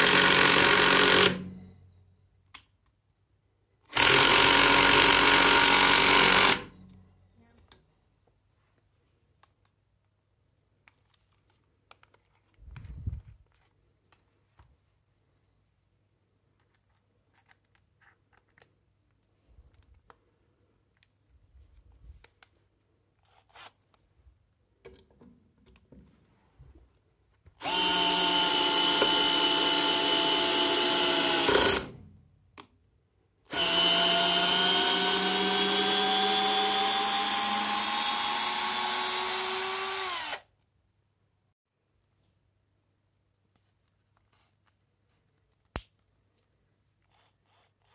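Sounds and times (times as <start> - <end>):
cordless drill driving screw: 0.0 - 1.5, 3.9 - 6.7, 27.6 - 32.0, 33.5 - 40.5.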